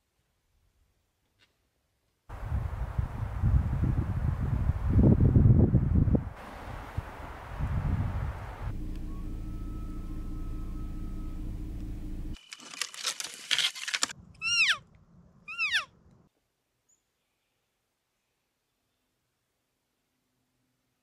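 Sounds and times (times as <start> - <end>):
steady low hum: 7.9 - 12.4
pine branches rustling: 12.4 - 14.2.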